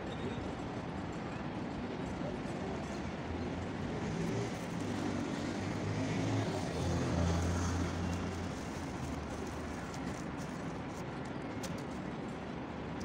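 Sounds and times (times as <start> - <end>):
street noise: 0.0 - 13.0
vehicle engine humming: 3.5 - 13.0.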